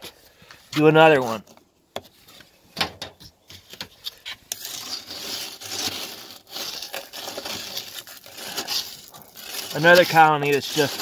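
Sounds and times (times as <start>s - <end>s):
stick scraping debris: 4.0s - 11.0s.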